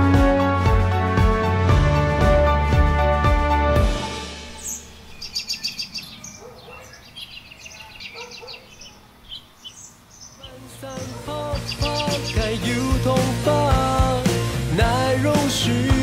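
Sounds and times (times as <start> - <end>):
music: 0.0 - 5.0, 10.5 - 16.0
small birds chirping: 4.6 - 14.2.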